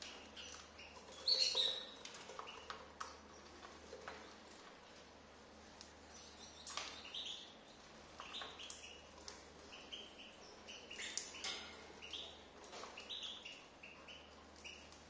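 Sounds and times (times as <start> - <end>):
cockatiels chirping: 0.0 - 3.1, 8.2 - 15.0.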